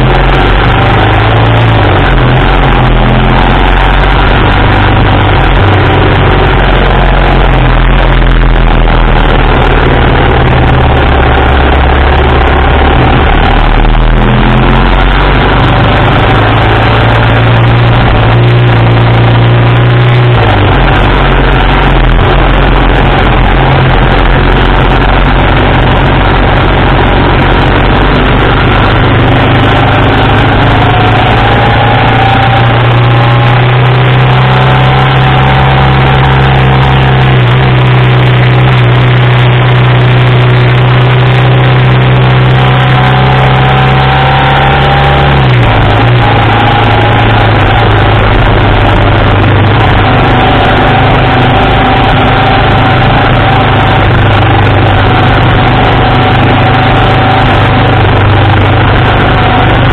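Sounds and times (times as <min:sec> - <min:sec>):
heavy wind noise: 0:00.0 - 0:59.9
motorcycle engine running: 0:00.0 - 0:59.9.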